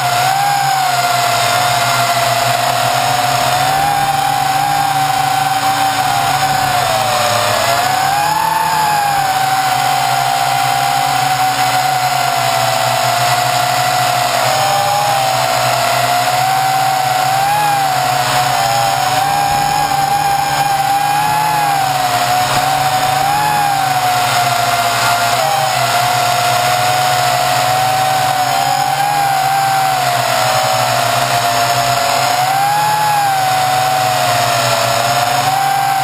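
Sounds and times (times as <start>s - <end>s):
quadcopter motors whining: 0.0s - 36.0s.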